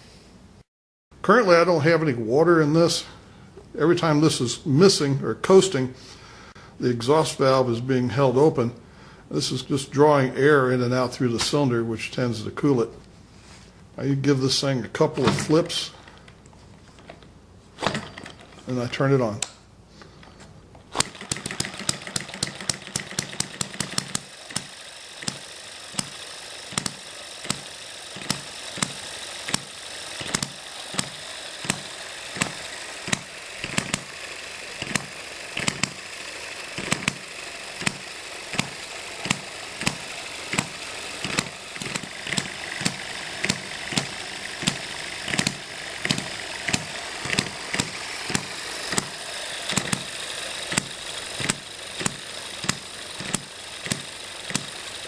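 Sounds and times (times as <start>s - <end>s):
model engine firing pops: 21.0s - 34.1s, 34.8s - 36.0s, 36.8s - 37.2s, 37.8s - 50.1s, 50.7s - 54.8s.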